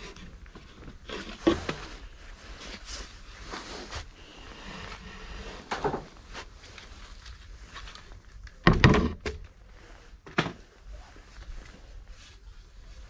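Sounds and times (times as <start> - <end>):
knocks and thuds: 8.6 - 9.4.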